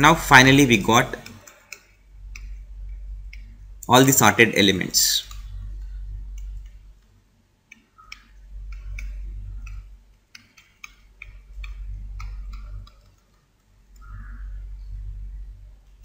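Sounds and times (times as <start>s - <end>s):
low hum: 0.0s - 1.3s, 1.9s - 7.4s, 8.0s - 13.1s, 13.7s - 16.0s
computer mouse clicking: 1.0s - 3.6s, 5.2s - 14.7s.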